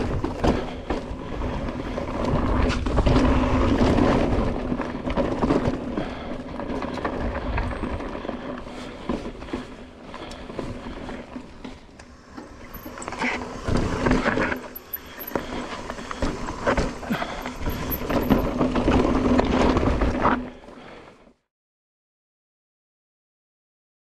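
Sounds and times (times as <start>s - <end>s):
bike chain and frame rattling: 0.0s - 20.2s
bike tyres rolling over rock: 0.0s - 21.0s.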